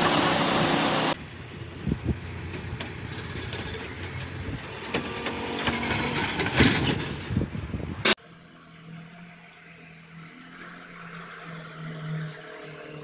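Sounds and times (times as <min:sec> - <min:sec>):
diesel truck engine running: 0:00.0 - 0:08.1.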